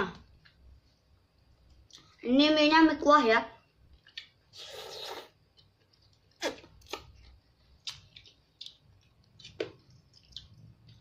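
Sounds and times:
slurping noodles: 4.5s - 5.4s
mouth smacks: 6.4s - 7.2s.

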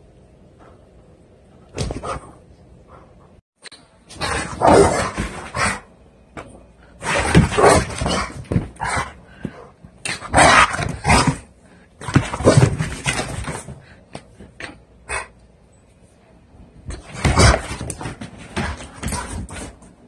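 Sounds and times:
dog barking and whining: 4.2s - 5.8s.

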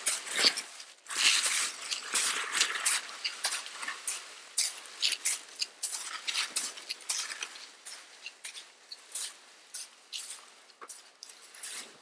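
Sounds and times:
plastic sled sliding: 0.0s - 8.2s
footsteps crunching in snow: 0.0s - 12.0s.

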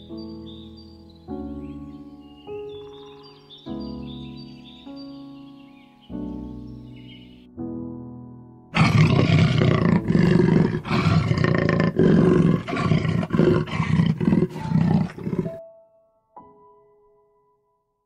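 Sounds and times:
big cat roaring: 8.8s - 15.5s.

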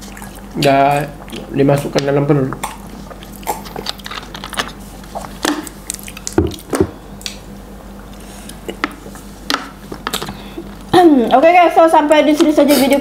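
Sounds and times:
wet mouth drinking and chewing: 0.0s - 7.4s.

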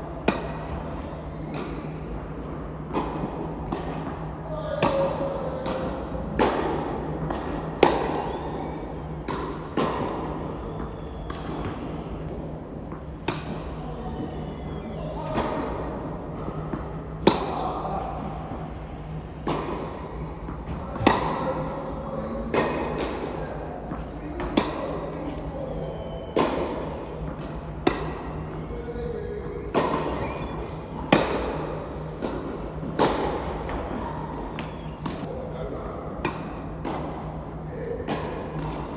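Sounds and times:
tennis ball bouncing: 0.2s - 1.8s, 4.8s - 12.3s, 12.9s - 13.8s, 20.5s - 21.4s, 26.4s - 28.5s, 29.7s - 35.2s
tennis racket hitting ball: 4.8s - 12.0s, 13.2s - 13.7s, 17.2s - 17.6s, 20.9s - 21.5s, 24.4s - 25.0s, 26.4s - 28.4s, 29.7s - 34.0s.

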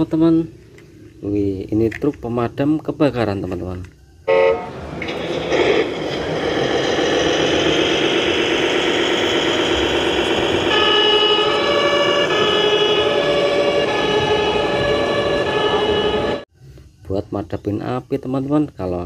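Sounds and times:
toy fire truck siren: 4.2s - 5.9s, 6.9s - 16.5s.

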